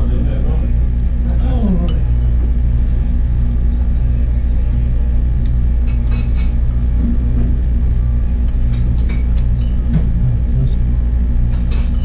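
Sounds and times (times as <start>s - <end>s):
low machine hum: 0.0s - 12.0s
spoon clinking against bowl: 8.5s - 10.0s.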